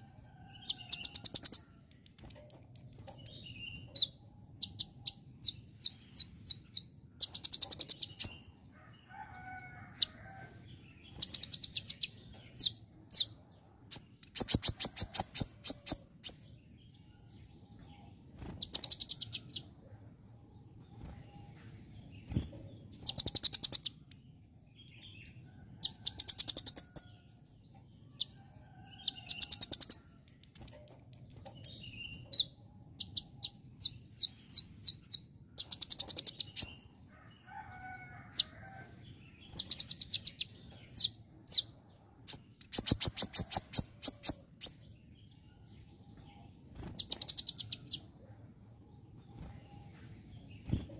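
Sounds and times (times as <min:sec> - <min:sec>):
sharp bird chirps: 0:00.6 - 0:08.5, 0:11.0 - 0:13.3, 0:13.9 - 0:16.4, 0:18.4 - 0:19.7, 0:22.3 - 0:24.3, 0:29.0 - 0:36.8, 0:39.5 - 0:41.7, 0:42.3 - 0:44.8, 0:46.8 - 0:48.0.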